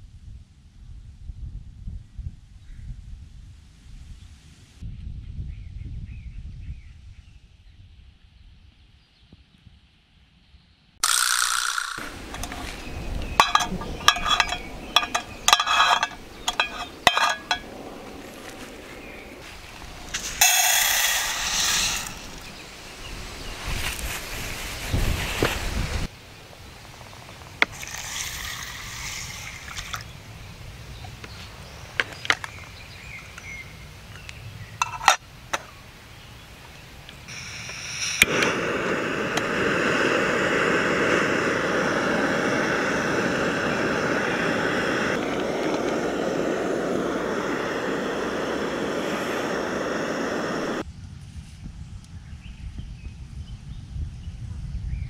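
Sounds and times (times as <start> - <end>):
metal tin clinks: 11.0 - 17.8
gas burner hissing: 11.0 - 26.1, 27.5 - 29.8, 37.2 - 50.8
burner ignition click: 37.3 - 50.8.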